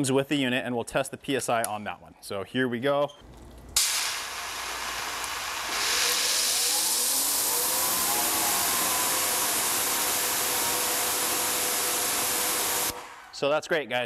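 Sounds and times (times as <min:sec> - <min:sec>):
water spray hissing: 0:03.8 - 0:13.2
pressure washer pump whine: 0:03.8 - 0:13.4.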